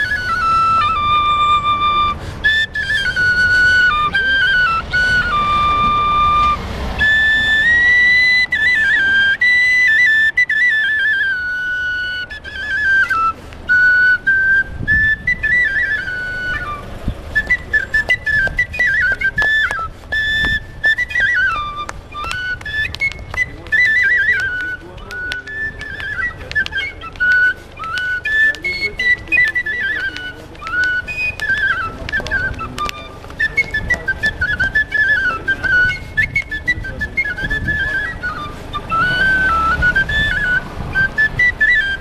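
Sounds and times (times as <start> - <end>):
flute melody: 0.0 - 42.0
handclaps: 18.0 - 19.8, 21.8 - 28.7, 29.4 - 34.1.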